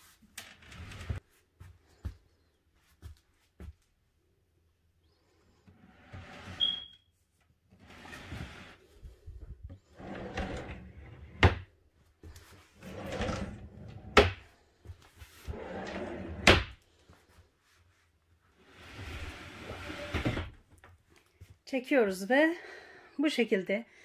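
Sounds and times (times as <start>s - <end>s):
wooden bed frame scraping: 0.4s - 1.2s, 5.8s - 6.8s, 7.8s - 8.9s, 9.9s - 11.6s, 12.7s - 14.4s, 15.3s - 16.8s, 18.6s - 20.6s.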